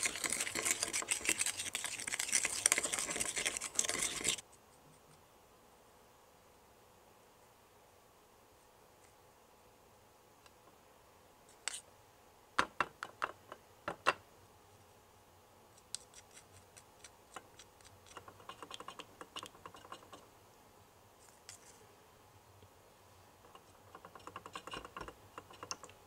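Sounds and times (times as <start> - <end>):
spatula scraping plastic cup: 0.0 - 4.4.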